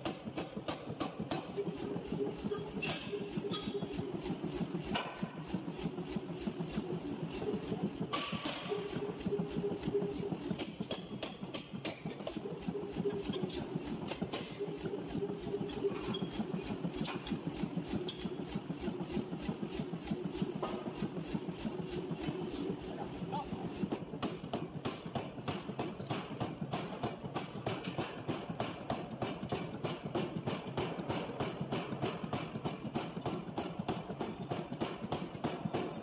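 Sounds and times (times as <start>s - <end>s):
hammer striking steel on anvil: 2.5s - 4.0s, 8.1s - 8.9s
machine hum: 12.4s - 23.6s.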